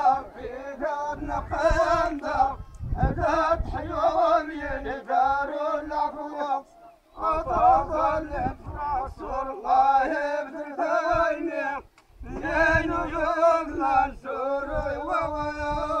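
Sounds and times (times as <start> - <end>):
men singing a chanted folk song: 0.0 - 16.0.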